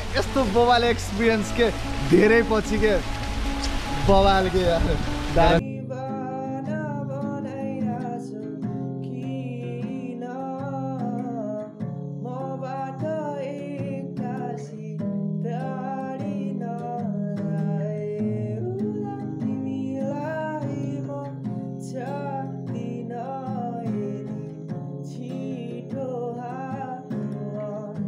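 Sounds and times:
music accompaniment: 0.0s - 28.0s
person singing: 4.8s - 28.0s.

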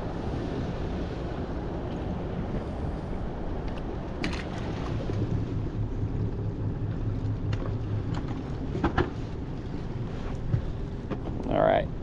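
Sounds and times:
water noise: 0.0s - 12.0s
wind: 0.0s - 12.0s
small boat motor running: 4.5s - 11.3s.

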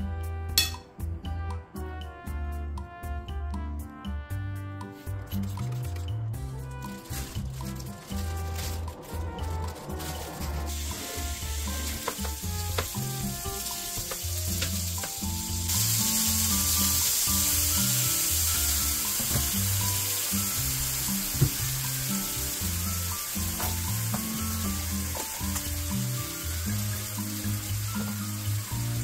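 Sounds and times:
background music: 0.0s - 29.0s
spatula tapping a pan: 0.6s - 0.8s
meat sizzling in a frying pan: 9.5s - 29.0s.

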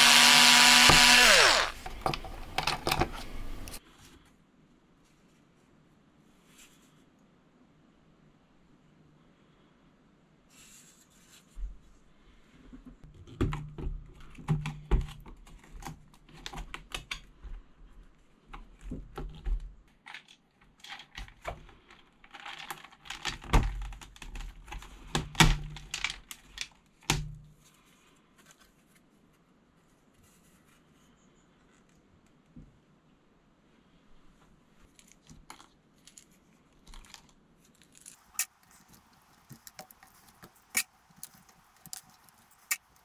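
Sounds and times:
plastic keyboard parts clattering: 20.1s - 27.3s.

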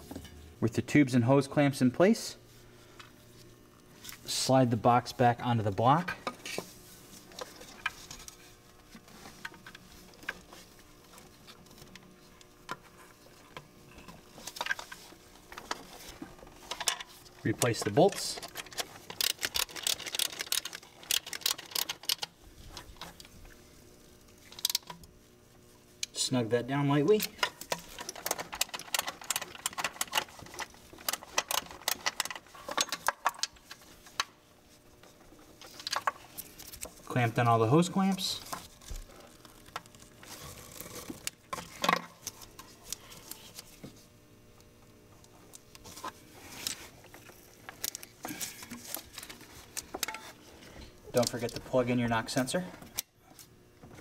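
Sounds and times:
plastic parts clicking: 17.6s - 22.3s, 27.3s - 33.6s
clicks of hoses and metal clamps: 45.2s - 51.7s.

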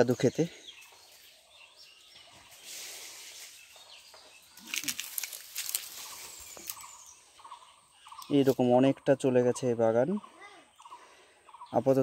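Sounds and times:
faint bird chirps: 0.0s - 12.0s
rustle: 4.5s - 7.0s.

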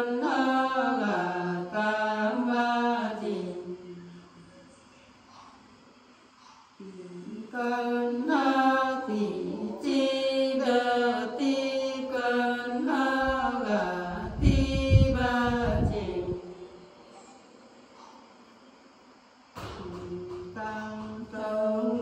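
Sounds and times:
women singing: 0.0s - 4.3s, 6.8s - 16.8s, 19.6s - 22.0s.

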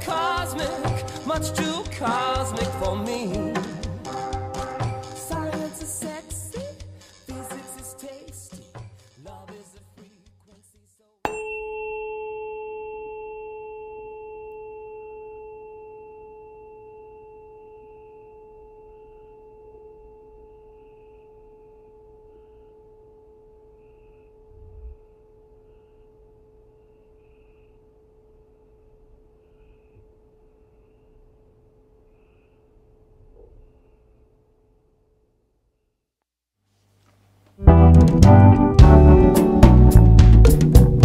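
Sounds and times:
song: 0.0s - 6.6s, 7.3s - 8.6s, 37.6s - 41.0s
tuning fork ringing: 11.3s - 26.9s.

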